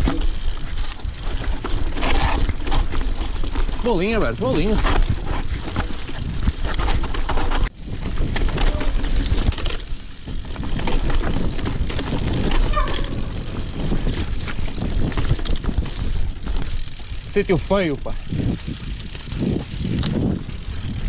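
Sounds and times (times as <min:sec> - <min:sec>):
bike rattling on rocky trail: 0:00.0 - 0:21.0
wind rumble on microphone: 0:00.0 - 0:21.0.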